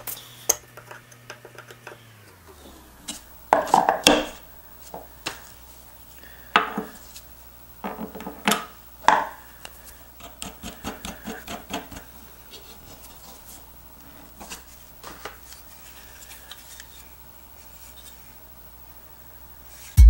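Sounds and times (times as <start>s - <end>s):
hand plane knocking on workbench: 3.5s - 4.4s, 6.6s - 7.0s.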